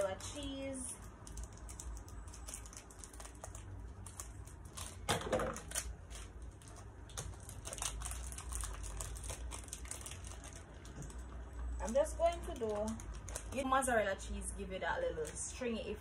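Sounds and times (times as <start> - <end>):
plastic crinkling: 0.0 - 14.4.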